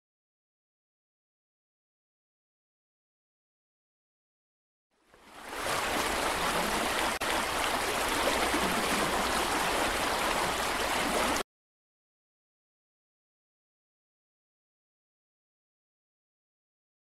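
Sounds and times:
running water rushing: 5.1s - 11.4s.

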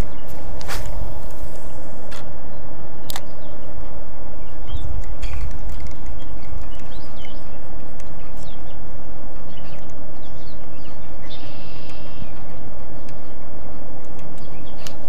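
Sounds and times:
low rumble: 0.0s - 7.2s.

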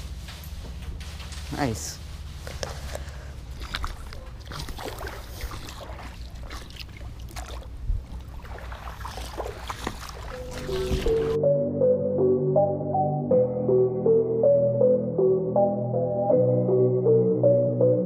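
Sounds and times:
water sloshing: 2.8s - 11.4s
wind rumble on microphone: 7.7s - 8.4s
background music: 10.3s - 18.0s.

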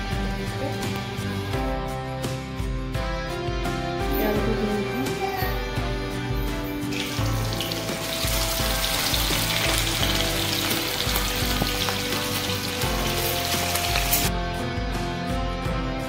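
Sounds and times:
background music: 0.0s - 16.0s
fish sizzling in hot oil: 6.9s - 14.3s.

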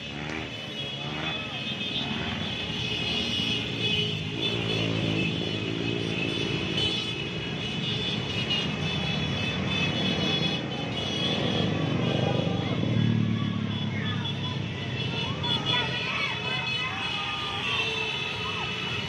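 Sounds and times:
scooter and motorcycle engines: 0.0s - 19.0s.

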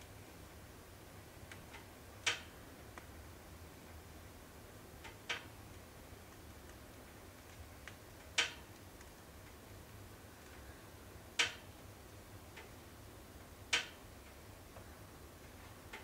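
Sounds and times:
faint steady hiss: 0.0s - 16.0s
wood fire crackling and popping: 5.3s - 9.6s.

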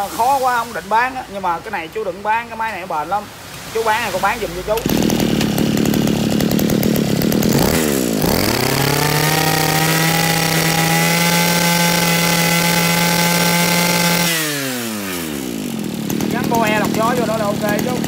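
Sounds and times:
brush-cutter engine running: 4.1s - 18.0s.

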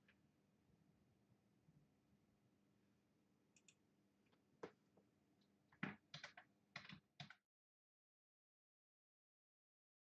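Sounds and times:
keyboard typing clicks: 3.6s - 3.8s, 5.8s - 7.4s.

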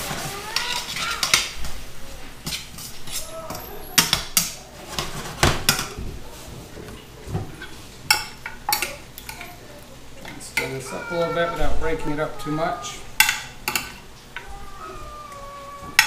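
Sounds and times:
metal tongs clanking on frying pan: 7.6s - 9.5s, 13.2s - 14.5s.

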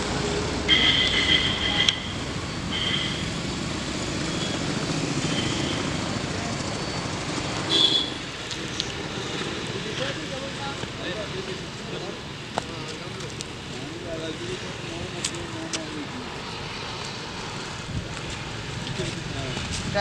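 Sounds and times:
traffic rumble: 0.0s - 20.0s.

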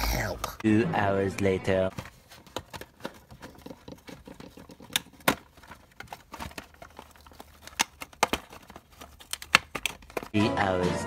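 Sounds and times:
hands fumbling with cardboard box: 1.8s - 10.4s.

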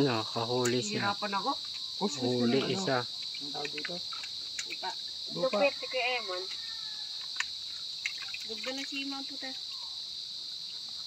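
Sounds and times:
voices talking: 0.0s - 6.6s, 8.4s - 9.8s
insects shrilling: 0.0s - 11.0s.

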